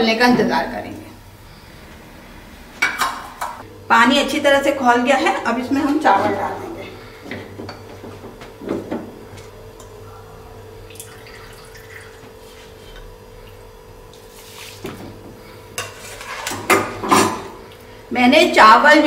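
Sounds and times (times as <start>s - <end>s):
water boiling in a pot: 9.3s - 18.3s.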